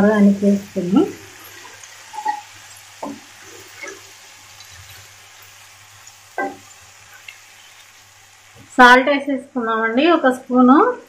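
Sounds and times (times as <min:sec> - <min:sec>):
spatula scraping pan: 0:01.4 - 0:05.2.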